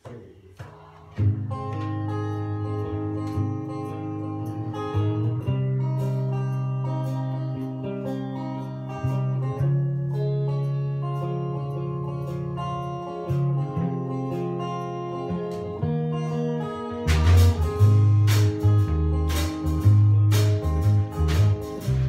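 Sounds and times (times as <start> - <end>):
drums: 0.0 - 2.2, 16.9 - 22.0
electric guitar: 0.6 - 22.0
strummed acoustic guitar: 0.6 - 22.0.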